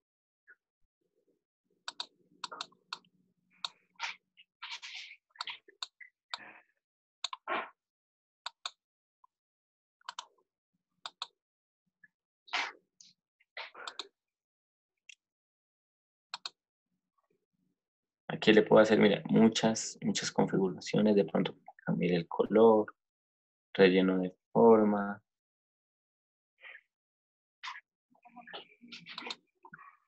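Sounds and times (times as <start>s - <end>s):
computer mouse clicks: 1.9s - 3.8s, 11.1s - 11.3s, 16.4s - 16.6s, 28.9s - 29.4s.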